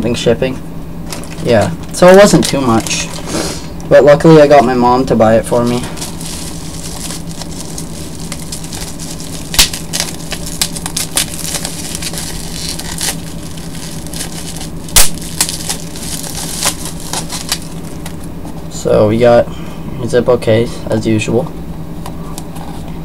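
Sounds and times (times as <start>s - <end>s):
low electrical hum: 0.0s - 23.0s
plastic packaging crinkling: 1.1s - 3.3s, 5.4s - 18.6s
plastic snapping: 9.5s - 12.1s.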